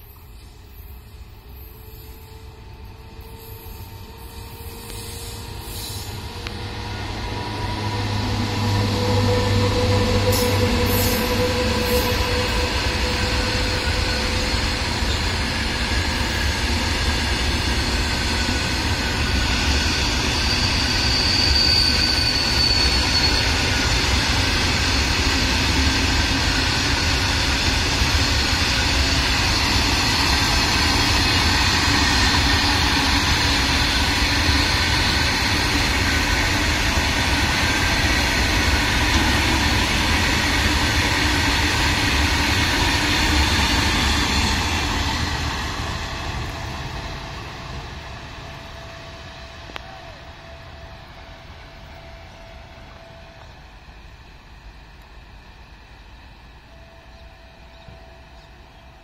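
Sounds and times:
locomotive whine: 0.0 - 59.0
train wheels rumbling on rails: 0.0 - 59.0
high wheel squeal: 3.2 - 17.0, 17.7 - 39.7.

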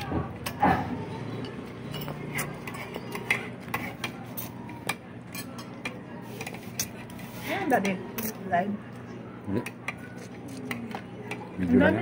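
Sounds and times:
cutlery clinking on plates: 0.4 - 7.2.

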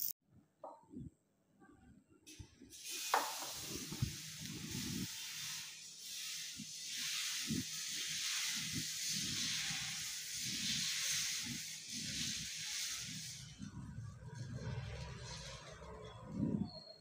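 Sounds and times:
batter hissing on griddle: 2.7 - 13.6
ladle rubbing against griddle: 3.1 - 13.8.

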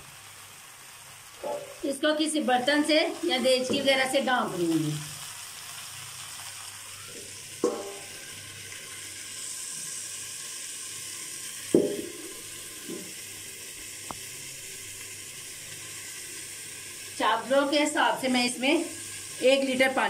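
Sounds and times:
food sizzling: 0.0 - 20.0
steel bowl clanking: 7.6 - 8.3.

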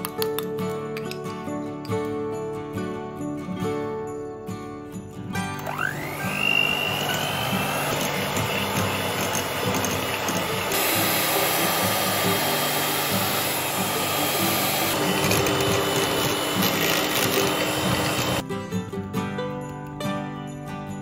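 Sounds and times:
electric hand mixer running: 5.6 - 18.4.

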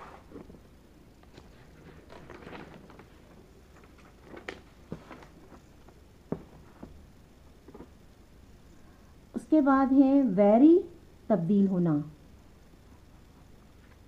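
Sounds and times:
paper rustling: 1.2 - 7.0
notebook knocking on table: 6.3 - 7.0.

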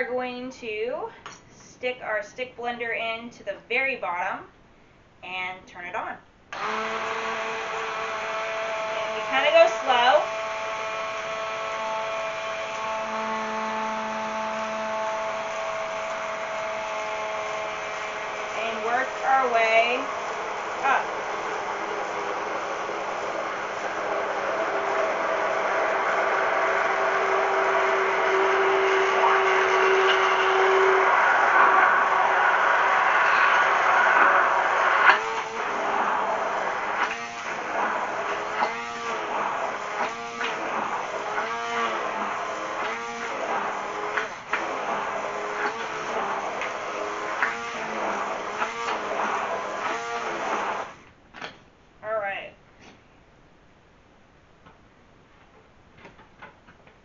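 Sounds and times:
stick blender motor whining: 6.5 - 51.1.

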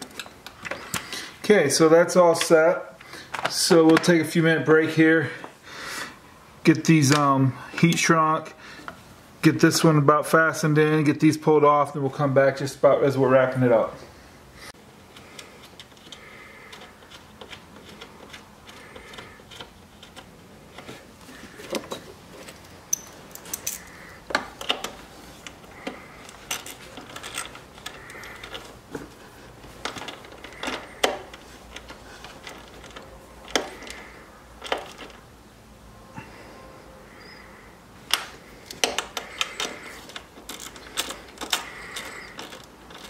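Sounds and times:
wrench clinking on metal bolts: 22.4 - 28.7, 38.1 - 43.0.

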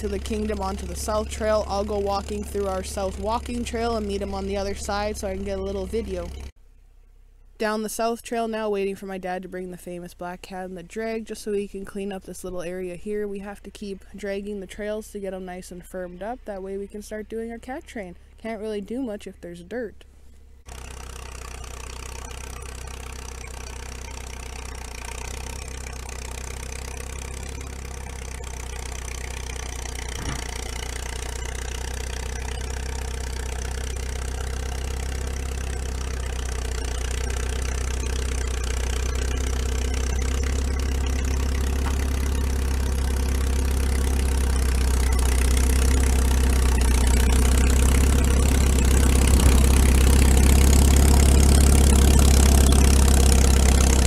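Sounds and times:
crawler tractor running: 0.0 - 6.7, 7.3 - 54.0.

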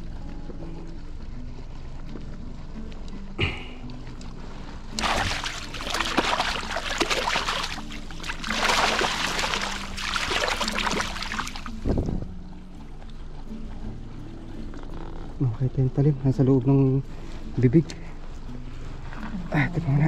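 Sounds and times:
faint background music: 0.0 - 20.0
water splashing and sloshing: 4.9 - 13.1.

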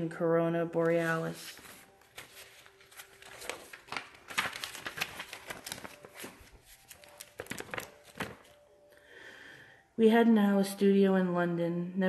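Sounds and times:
paper rustling and crinkling: 0.7 - 8.6.

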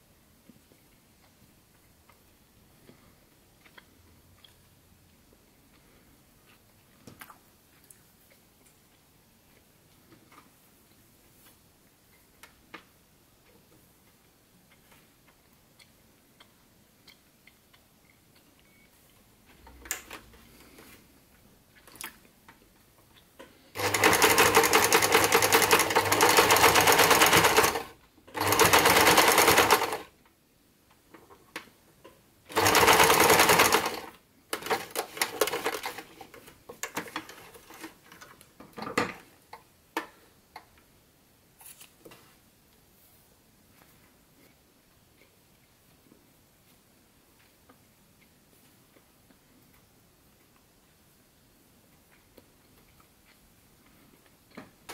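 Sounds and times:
sewing machine stitching: 23.8 - 30.1, 32.5 - 36.3.

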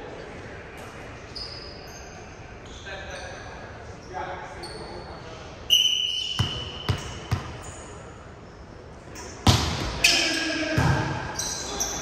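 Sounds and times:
volleyball bouncing on gym floor: 6.4 - 7.6, 9.4 - 11.2.

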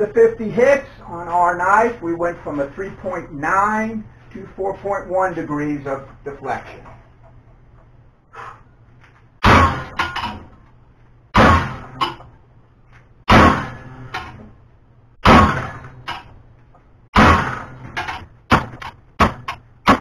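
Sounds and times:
sledge hammer striking steel: 9.4 - 10.4, 11.4 - 12.2, 13.3 - 14.4, 15.2 - 16.3, 17.2 - 20.0.

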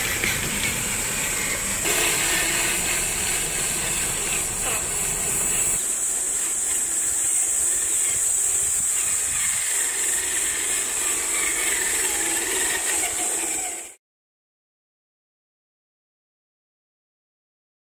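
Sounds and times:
electric motor and gears whining: 0.0 - 14.0
high-pitched hiss: 0.0 - 14.0.

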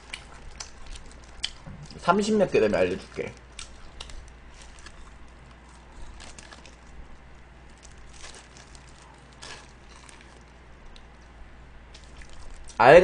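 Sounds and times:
chewing crunchy food: 0.0 - 12.8.

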